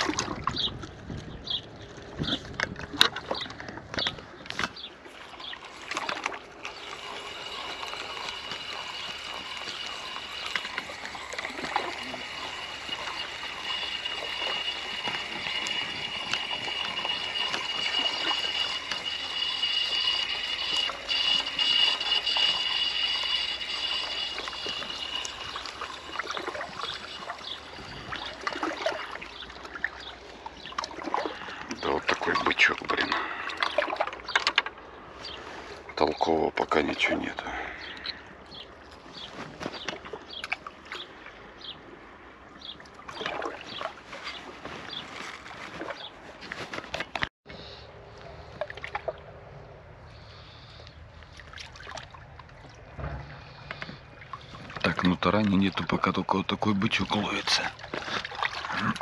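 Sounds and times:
steady high-pitched noise: 0:06.7 - 0:29.0
small waves lapping: 0:22.2 - 0:36.0, 0:48.0 - 0:59.0.

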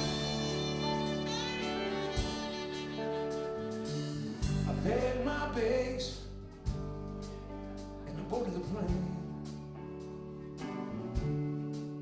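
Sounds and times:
electric guitars: 0:00.0 - 0:08.3
bass guitar: 0:00.0 - 0:12.0
drums: 0:00.0 - 0:12.0.

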